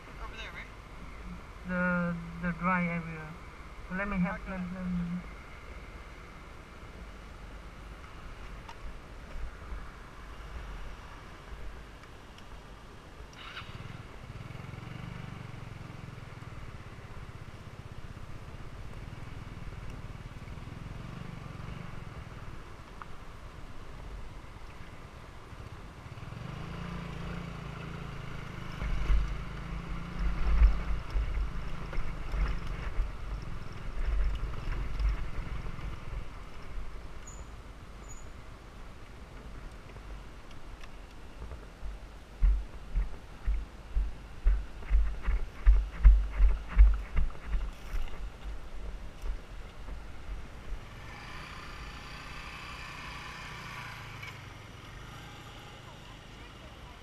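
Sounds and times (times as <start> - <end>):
wind buffeting microphone: 41.8 - 50.7
small motorbike engine running: 50.8 - 57.0.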